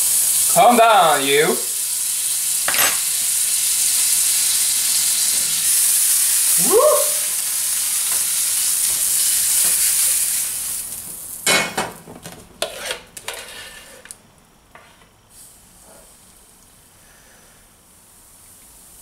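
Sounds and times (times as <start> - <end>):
butter sizzling in a frying pan: 0.0 - 11.7.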